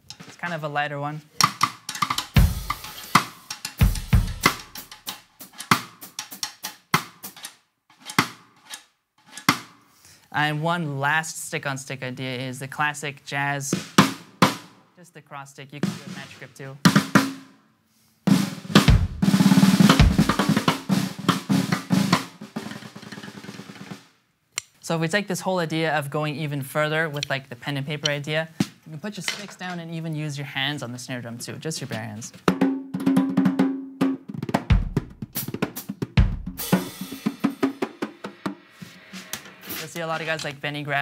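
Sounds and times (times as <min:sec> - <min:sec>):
stick scraping drum rim: 0:01.4 - 0:09.7, 0:38.8 - 0:40.7
drumsticks clicking together: 0:03.2 - 0:03.8, 0:24.6 - 0:24.8.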